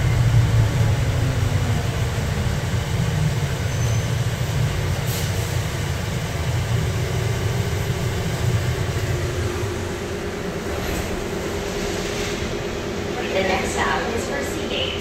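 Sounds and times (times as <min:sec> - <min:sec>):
train car rumbling: 0:00.0 - 0:15.0.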